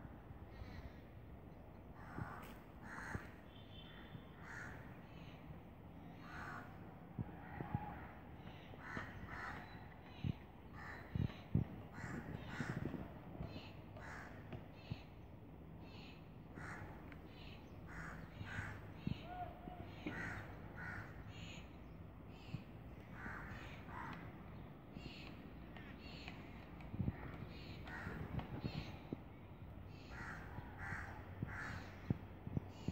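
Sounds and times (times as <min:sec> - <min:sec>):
crows cawing: 0:02.0 - 0:05.2, 0:06.2 - 0:06.8, 0:07.4 - 0:14.9, 0:16.0 - 0:21.6, 0:23.1 - 0:24.4, 0:27.1 - 0:28.4, 0:29.9 - 0:32.1.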